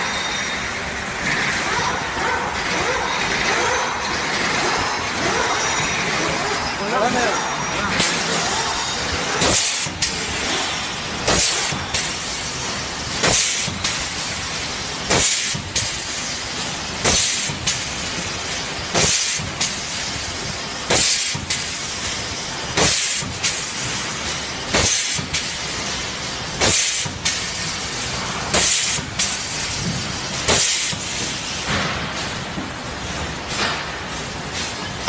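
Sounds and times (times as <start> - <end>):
factory hum: 0.0 - 35.0.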